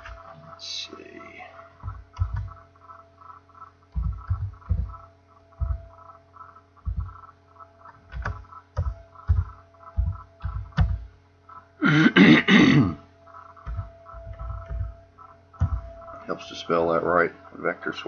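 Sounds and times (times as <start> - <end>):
steady electrical hum: 0.0 - 18.0
computer keyboard keystrokes: 1.8 - 2.6, 3.9 - 5.0, 7.8 - 11.0, 13.6 - 15.0
person clearing throat: 11.8 - 13.0.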